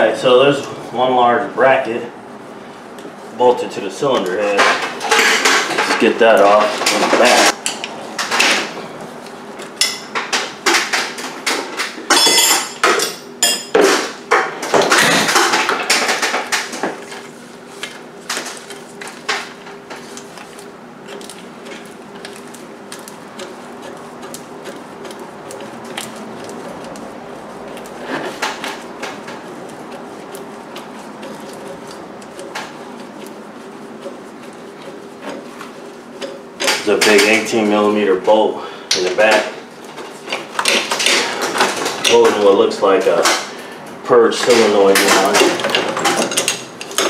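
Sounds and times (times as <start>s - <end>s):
steady low hum: 0.0s - 47.0s
hand tools clinking on metal: 12.1s - 13.8s.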